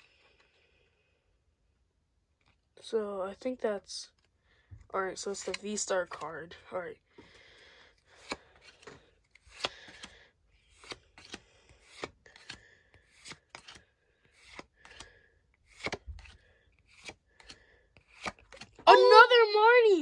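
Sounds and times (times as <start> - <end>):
cards snapping and sliding: 5.3 - 6.3, 8.0 - 18.8.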